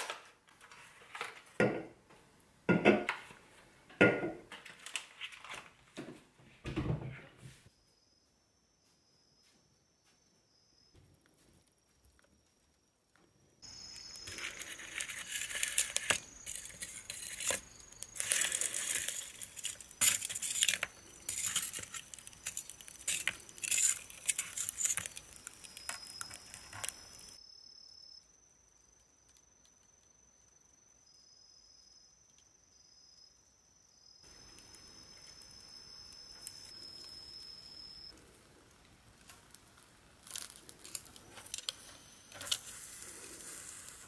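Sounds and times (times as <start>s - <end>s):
high-pitched insect trill: 7.7s - 11.0s, 13.6s - 38.2s, 40.2s - 44.0s
metal tongs clinking on grill net: 18.2s - 26.8s.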